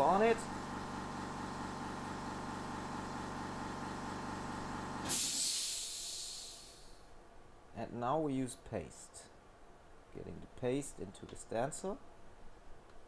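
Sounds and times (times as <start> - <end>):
electrical machine hum: 0.0 - 7.7
high hiss of air: 5.0 - 7.1.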